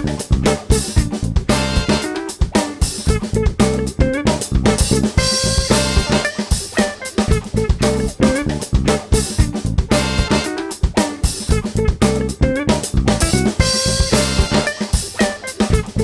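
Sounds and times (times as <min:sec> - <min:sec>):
background music with drum beat: 0:00.0 - 0:16.0.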